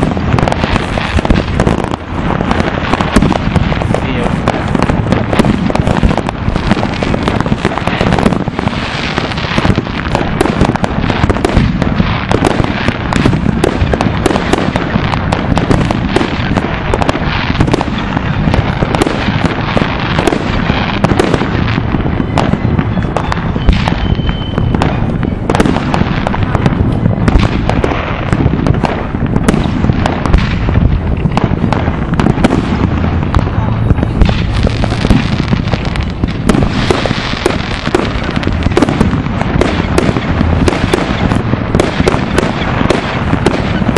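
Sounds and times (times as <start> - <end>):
fireworks banging and crackling: 0.0 - 43.9.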